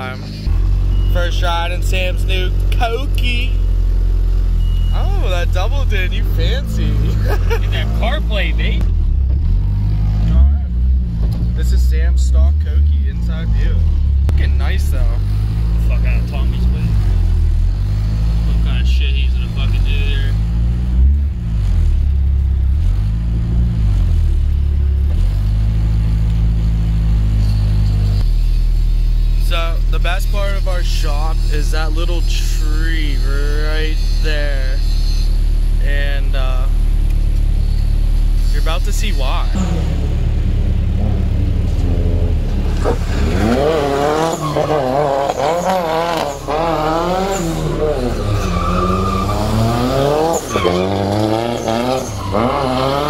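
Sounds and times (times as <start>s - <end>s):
car engine at high revs: 0.0s - 53.0s
tyres squealing: 37.5s - 53.0s.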